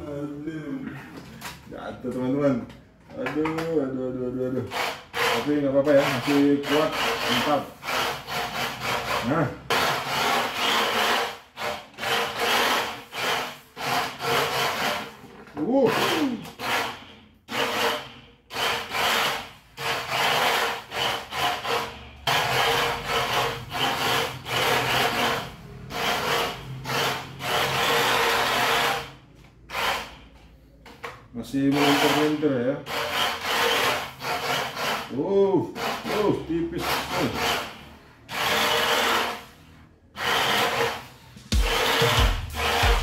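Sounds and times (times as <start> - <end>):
rc car electric motor buzzing: 15.9 - 30.1, 31.7 - 35.1, 37.2 - 39.6, 40.2 - 41.1, 41.8 - 42.9.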